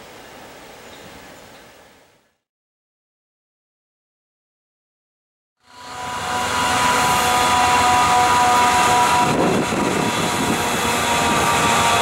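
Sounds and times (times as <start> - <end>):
diesel locomotive engine whine: 5.6 - 12.0.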